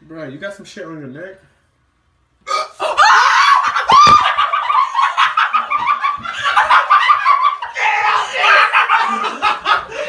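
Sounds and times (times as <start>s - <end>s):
person shrieking: 2.5s - 4.3s, 7.6s - 9.1s
person laughing: 3.4s - 10.0s.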